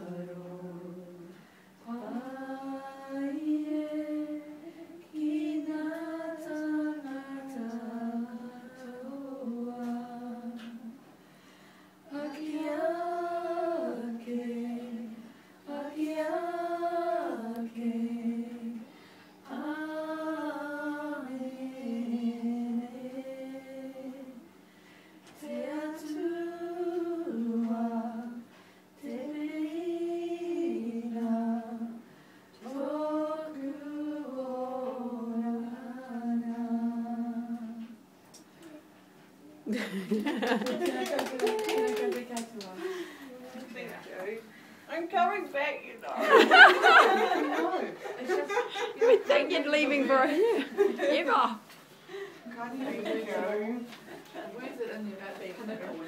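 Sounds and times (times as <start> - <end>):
women singing unaccompanied: 0.0 - 11.0, 12.1 - 18.9, 19.5 - 24.5, 25.3 - 32.0, 32.6 - 38.0.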